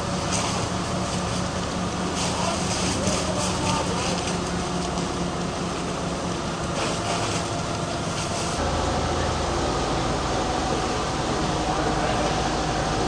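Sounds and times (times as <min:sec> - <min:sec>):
engine drone: 0:00.0 - 0:13.0
hose stream of water: 0:00.0 - 0:13.0
pumps hissing: 0:00.2 - 0:08.7.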